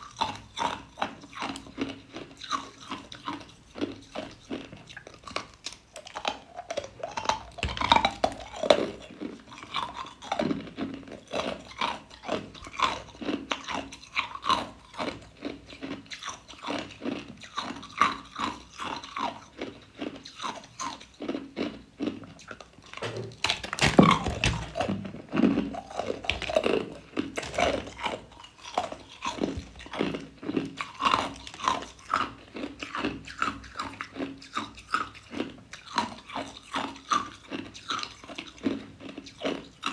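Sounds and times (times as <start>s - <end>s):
ice crunching between teeth: 0.0s - 39.9s.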